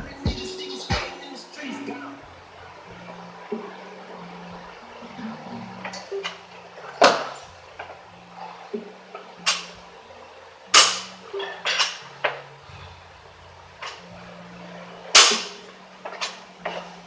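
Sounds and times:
feet stamping: 0:00.0 - 0:01.2
barbell clanking: 0:05.5 - 0:09.8, 0:10.7 - 0:12.5, 0:15.1 - 0:17.0.

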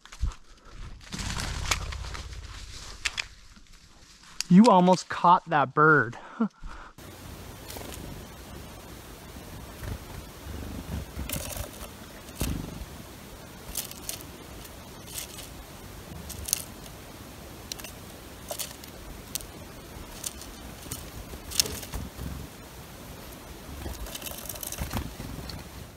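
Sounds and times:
low rumble: 0:00.7 - 0:04.3
bird ticking and scraping at feeder: 0:07.1 - 0:25.7.

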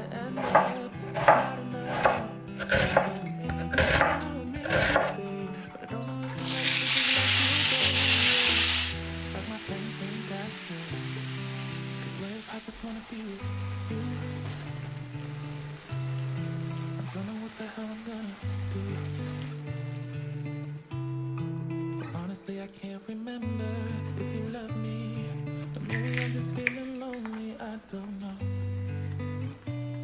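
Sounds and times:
food sizzling in oiled pan: 0:06.4 - 0:21.2, 0:28.2 - 0:30.0.

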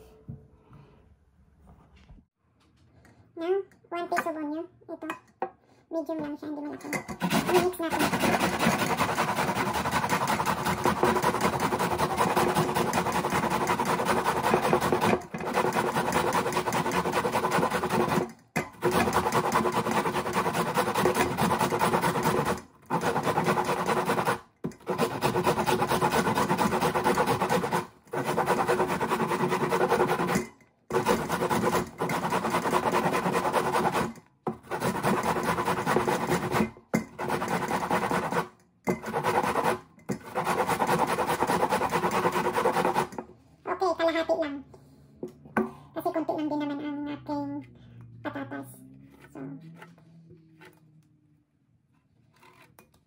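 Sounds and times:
onion grated on metal grater: 0:06.7 - 0:43.2.

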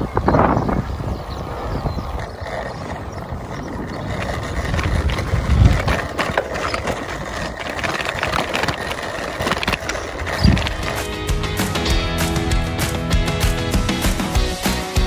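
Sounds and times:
wind rumbling on microphone: 0:00.0 - 0:11.0
bicycle rattling on road: 0:00.0 - 0:14.2.

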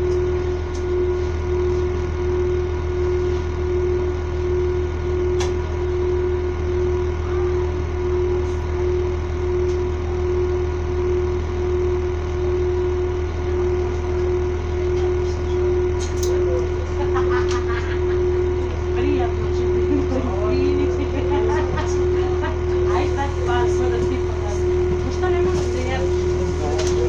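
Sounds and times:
pulsing droning tone: 0:00.0 - 0:27.0
train machinery idling hum: 0:00.0 - 0:27.0.

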